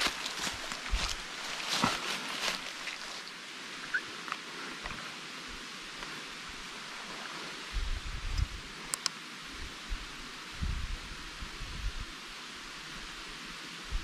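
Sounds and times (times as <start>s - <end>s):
dry leaves crunching underfoot: 0.0s - 3.3s
steady outdoor hiss: 0.0s - 14.0s.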